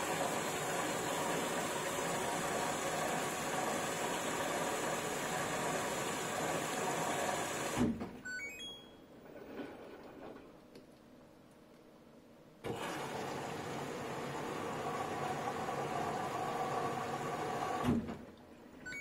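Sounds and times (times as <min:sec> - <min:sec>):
washing machine running: 0:00.0 - 0:08.0, 0:12.6 - 0:19.0
short electronic beeps: 0:08.2 - 0:09.0.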